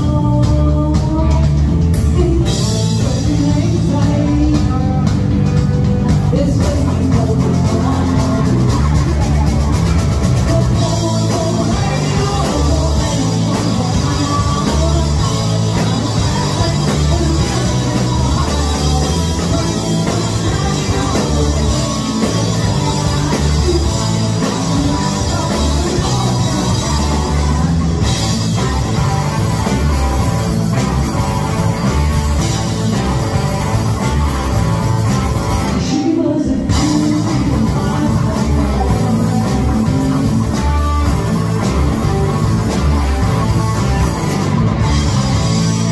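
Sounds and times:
woman singing: 0.0s - 5.3s, 10.4s - 28.2s, 35.8s - 40.6s
bass: 0.0s - 45.9s
distorted electric guitars: 0.0s - 45.9s
drum kit: 0.0s - 45.9s.

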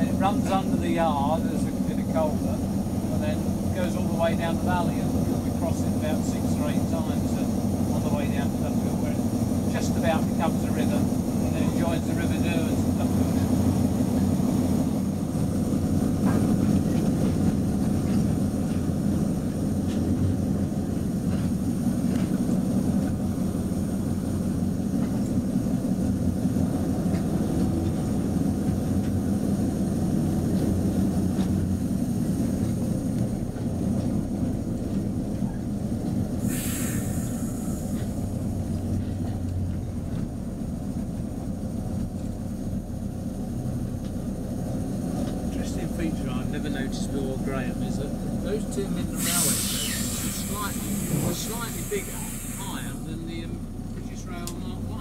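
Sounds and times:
diesel locomotive engine droning: 0.0s - 55.0s
sharp hiss: 36.4s - 38.2s, 49.1s - 53.1s.

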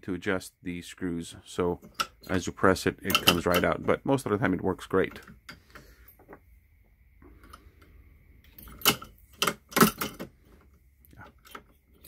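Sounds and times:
metallic clicks and clinks: 1.8s - 3.8s, 8.4s - 10.3s.

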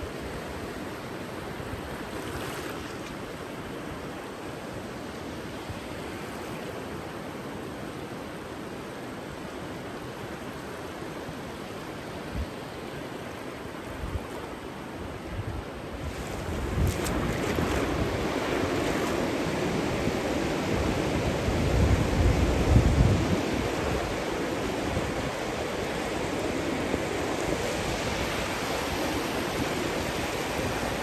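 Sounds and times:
ocean surf washing: 0.0s - 31.0s
wind thumping on microphone: 16.4s - 18.4s.

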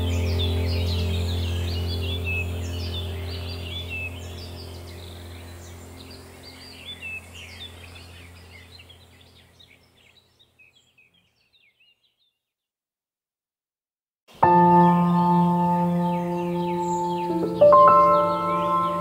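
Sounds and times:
steady low drone: 0.0s - 9.4s, 14.4s - 19.0s
small birds chirping: 0.0s - 12.7s, 14.3s - 19.0s.

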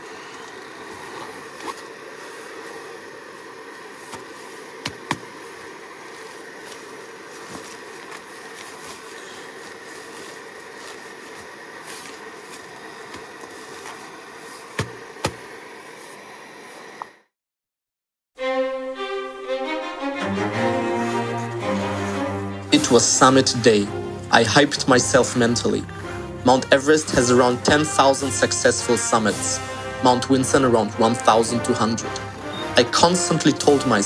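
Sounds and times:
steady rushing hiss: 0.0s - 17.0s, 21.2s - 34.0s
boot clicks and rustles: 4.1s - 15.5s
bowed string music: 18.4s - 34.0s.

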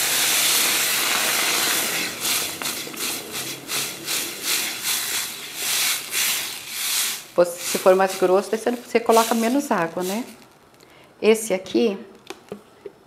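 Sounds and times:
hot pot hissing: 0.0s - 10.7s
spatula stirring a pot: 0.2s - 10.4s.

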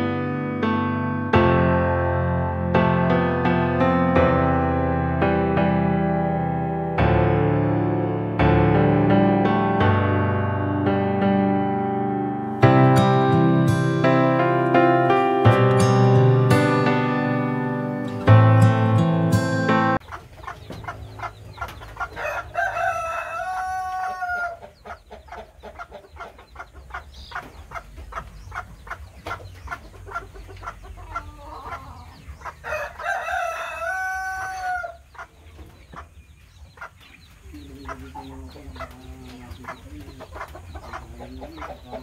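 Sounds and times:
chicken drawn-out call: 20.0s - 36.1s
chickens clucking rapidly: 20.0s - 42.0s
rooster crowing: 22.0s - 24.7s, 31.2s - 35.0s.

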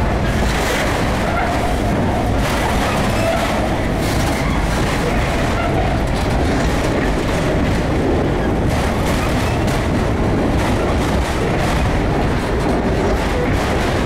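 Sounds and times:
freight train rolling past: 0.0s - 14.0s.

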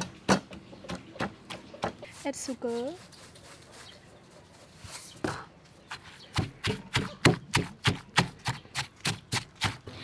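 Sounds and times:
wooden pestle pounding in mortar: 6.3s - 9.9s.

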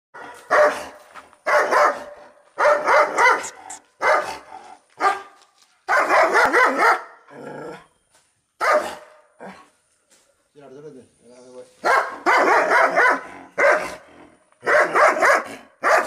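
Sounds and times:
dog barking angrily: 0.2s - 5.3s, 5.9s - 7.2s, 8.6s - 9.2s, 11.8s - 16.0s.

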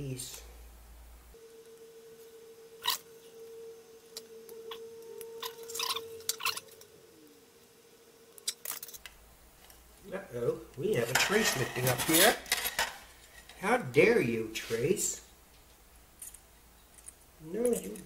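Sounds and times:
faint steady tone: 0.0s - 18.0s
metal clicks and scrapes: 11.0s - 13.6s.

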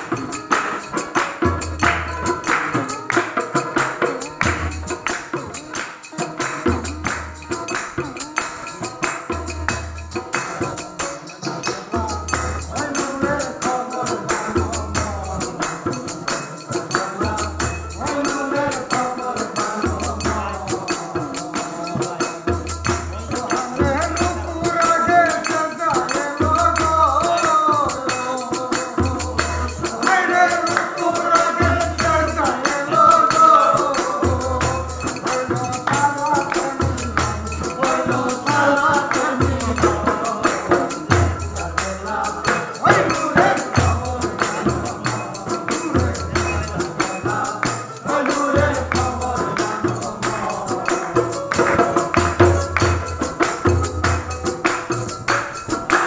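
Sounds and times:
hand clapping: 0.0s - 13.2s, 32.6s - 56.0s
jingling hand percussion: 0.0s - 56.0s
man singing: 0.0s - 56.0s.

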